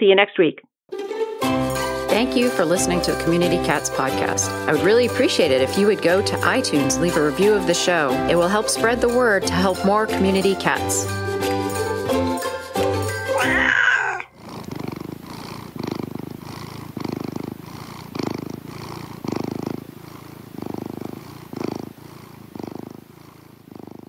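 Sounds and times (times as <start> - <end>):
cat purring: 2.2 - 11.1, 13.8 - 24.0.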